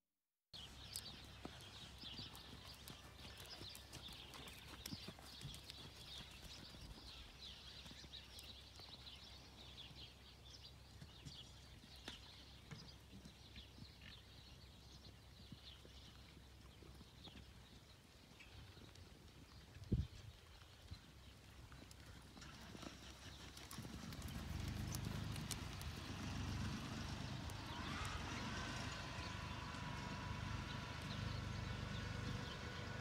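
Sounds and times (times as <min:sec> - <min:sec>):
hoofbeats on sand: 0:00.6 - 0:14.4, 0:21.8 - 0:32.8
small birds chirping: 0:00.6 - 0:33.0.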